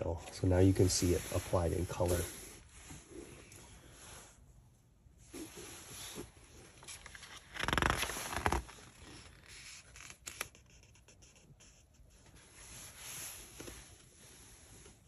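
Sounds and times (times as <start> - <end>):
book page turning: 6.7 - 11.8.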